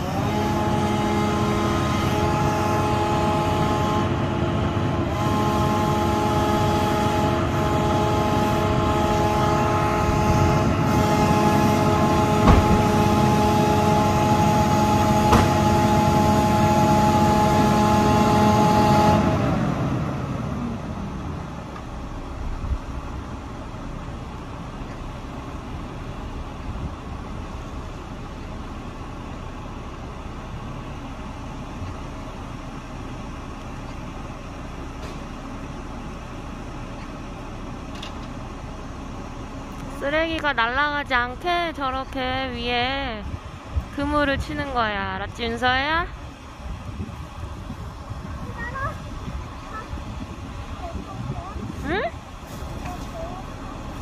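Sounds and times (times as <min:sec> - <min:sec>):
truck engine at raised revs: 0:00.0 - 0:54.0
sharp knocks: 0:12.4 - 0:13.0, 0:15.3 - 0:15.6.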